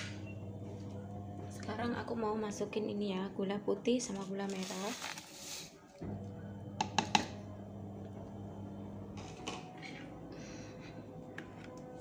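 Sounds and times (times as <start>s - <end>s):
low hum: 0.0s - 3.3s, 6.0s - 12.0s
plastic bag rustling: 4.1s - 5.7s.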